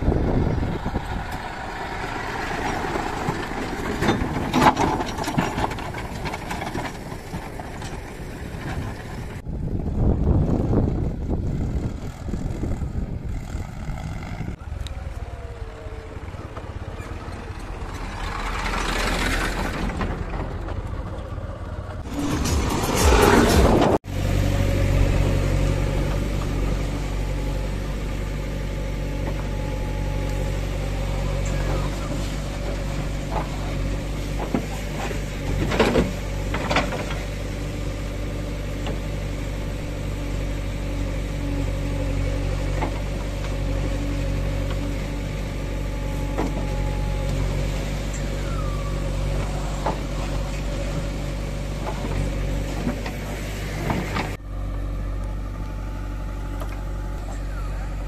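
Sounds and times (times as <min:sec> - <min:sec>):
backhoe diesel engine digging: 0:00.0 - 0:58.0
tractor engine: 0:00.0 - 0:58.0.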